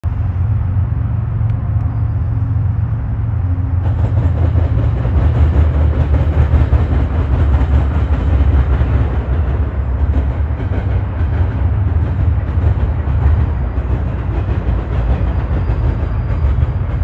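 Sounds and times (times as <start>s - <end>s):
diesel locomotives rumbling: 0.0s - 17.0s.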